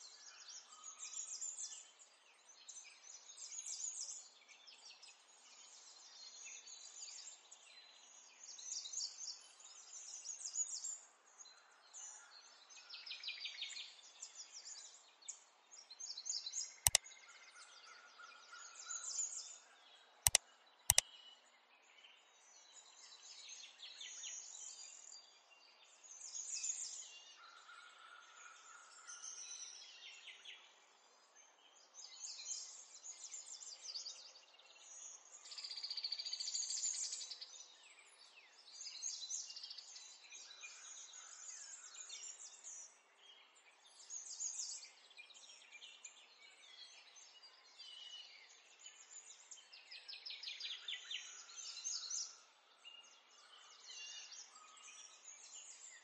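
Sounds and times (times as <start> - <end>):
sharp clicks: 20.3 - 21.0.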